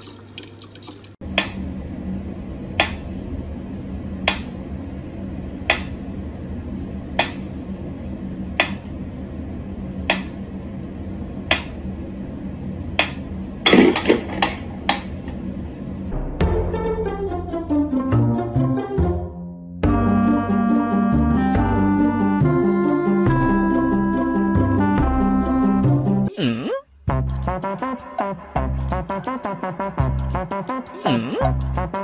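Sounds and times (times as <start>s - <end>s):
steady low hum: 1.2s - 17.2s
knocks and clatter: 13.7s - 15.1s.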